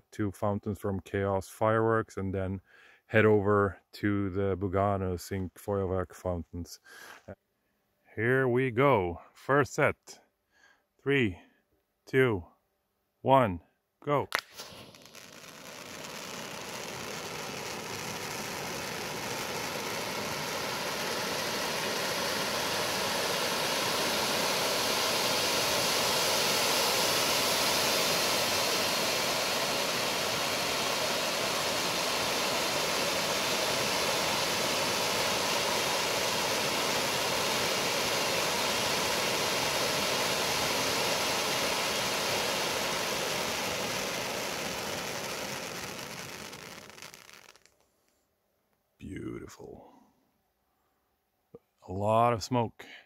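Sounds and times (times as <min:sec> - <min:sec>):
firework fountains hissing: 0:14.3 - 0:47.8.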